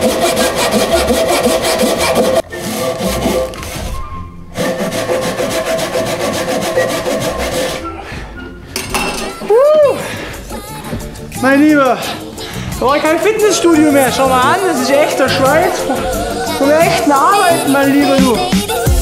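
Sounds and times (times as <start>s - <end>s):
hand saw cutting wood: 0.0s - 4.0s, 4.6s - 7.9s, 13.4s - 18.3s.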